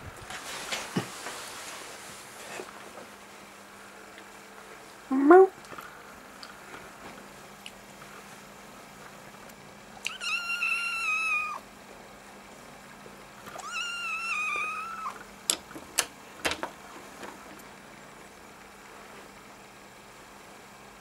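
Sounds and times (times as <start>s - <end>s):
kitten mewing: 10.0s - 11.6s, 13.6s - 15.2s.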